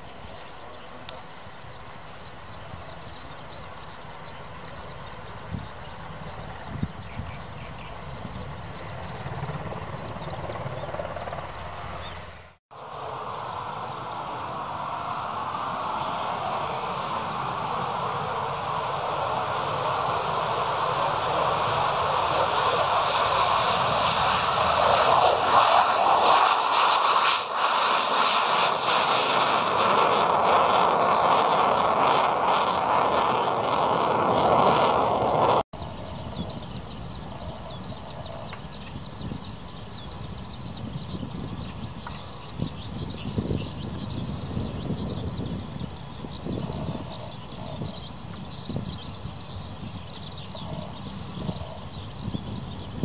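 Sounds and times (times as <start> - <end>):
birds chirping: 0.0 - 53.0
jet engine running: 0.0 - 53.0
helicopter rotor pulsing: 2.5 - 48.0.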